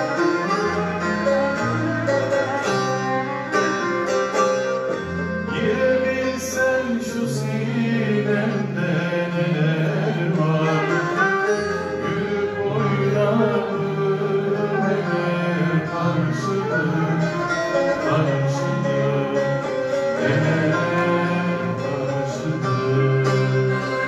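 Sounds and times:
acoustic guitars: 0.0s - 24.0s
long-necked lute: 0.0s - 24.0s
choir singing folk song: 5.0s - 24.0s.

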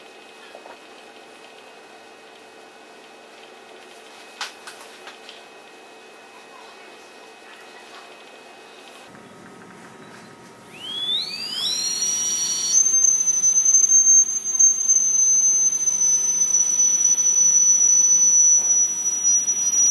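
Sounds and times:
dental handpiece whine: 10.7s - 19.9s.

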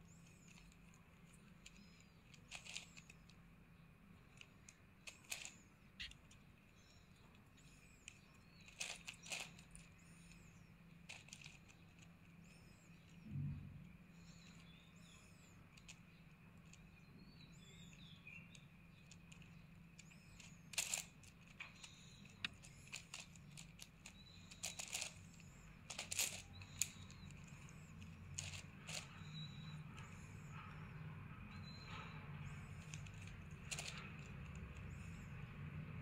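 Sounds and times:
plastic puzzle cube layers clicking: 0.3s - 3.4s, 4.3s - 6.5s, 8.0s - 10.4s, 11.1s - 12.1s, 18.5s - 30.2s, 32.8s - 34.9s.

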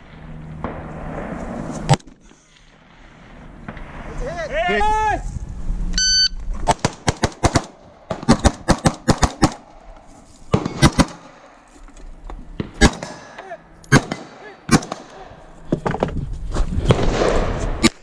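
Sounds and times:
gunshots: 6.6s - 9.7s, 10.5s - 11.5s, 12.6s - 15.4s, 16.8s - 18.0s.

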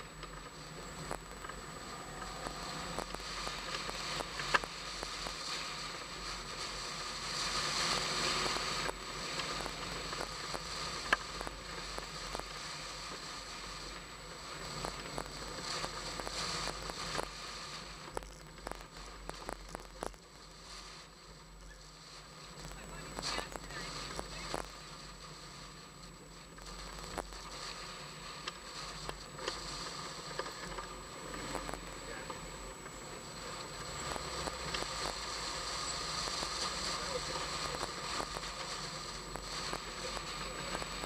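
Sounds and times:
rustling crackles: 0.0s - 41.0s
car running: 29.0s - 41.0s.

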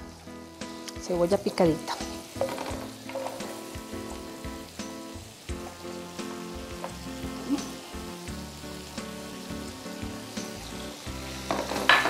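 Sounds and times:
onion sizzling in a frying pan: 0.0s - 12.0s.

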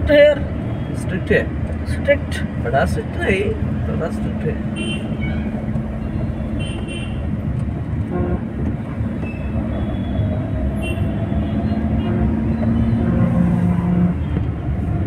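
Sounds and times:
road traffic rumble: 0.0s - 15.0s
car horn beeps: 4.8s - 7.3s, 9.2s - 14.4s.

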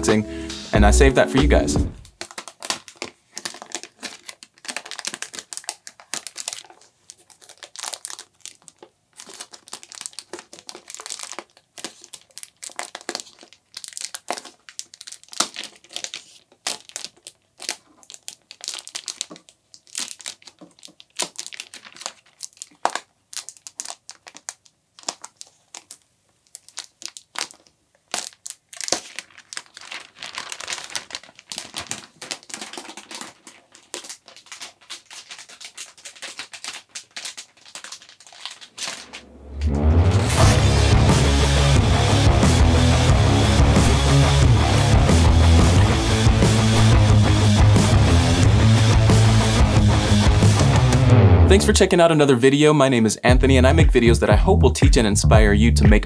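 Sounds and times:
plastic film crackling: 2.0s - 41.0s.

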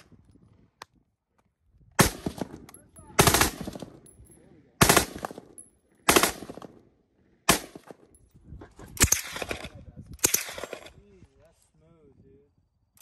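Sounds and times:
rifle automatic fire bursts: 3.2s - 3.9s, 4.8s - 5.4s, 6.1s - 6.6s.

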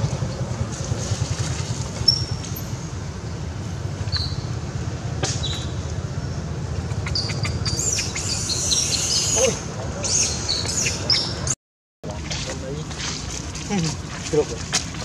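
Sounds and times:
steady low rumble: 0.0s - 8.8s
high bird chirps: 4.1s - 4.6s, 5.4s - 11.5s.

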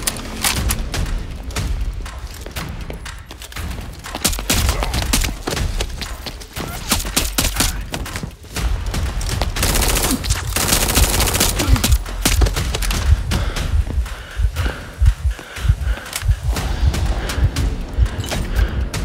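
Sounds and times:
rapid blaster fire: 9.6s - 12.6s.

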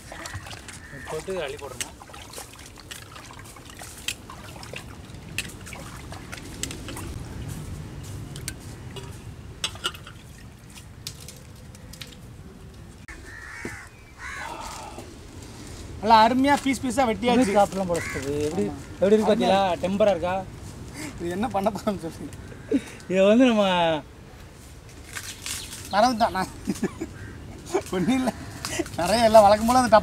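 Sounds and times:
crow cawing: 0.1s - 1.5s, 13.1s - 15.1s, 17.3s - 19.3s, 22.3s - 23.1s, 27.0s - 29.0s.

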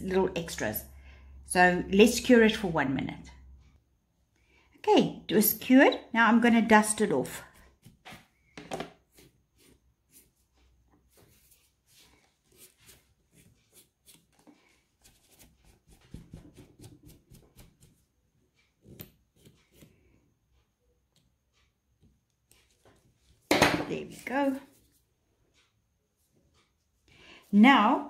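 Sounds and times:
soft brush strokes: 9.1s - 18.7s, 24.5s - 27.8s.

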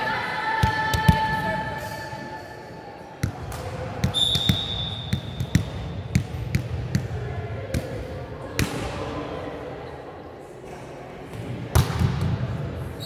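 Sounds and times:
volleyball bouncing on floor: 3.2s - 7.9s.

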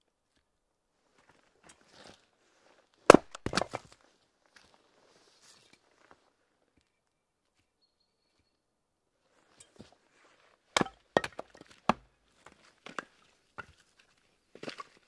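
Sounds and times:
hatchet chopping firewood: 3.1s - 3.8s, 10.8s - 12.2s.

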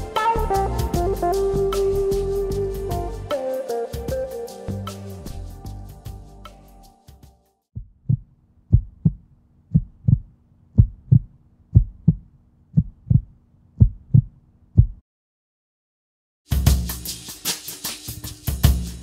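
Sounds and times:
drum kit playing: 0.0s - 7.4s, 16.5s - 19.0s
heartbeat double thumps: 7.8s - 15.0s.

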